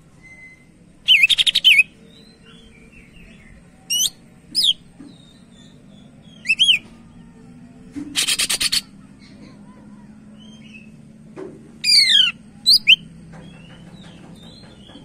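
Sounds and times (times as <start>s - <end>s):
bird singing: 0.2s - 7.4s, 10.3s - 11.1s, 11.8s - 15.0s.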